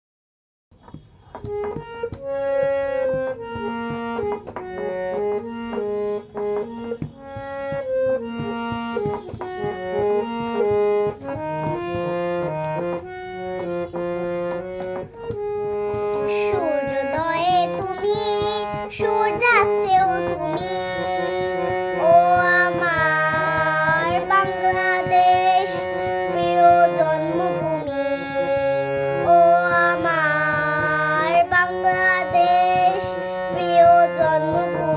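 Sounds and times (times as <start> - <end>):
light percussion: 0.8 - 34.9
reed instrument melody: 0.8 - 34.9
girl singing: 1.3 - 12.9, 15.8 - 34.9.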